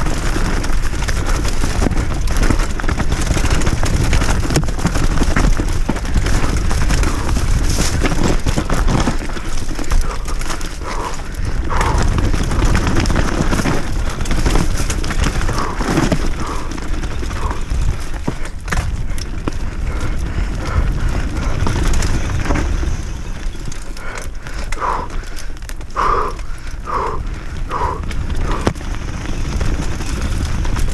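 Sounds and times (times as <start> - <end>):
tyres clattering over stones: 0.0 - 19.8
bike rattling: 0.0 - 30.9
wind rumble on microphone: 0.0 - 30.9.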